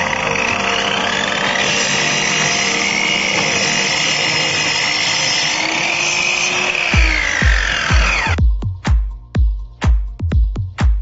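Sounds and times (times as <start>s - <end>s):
miter saw cutting metal: 0.0s - 8.4s.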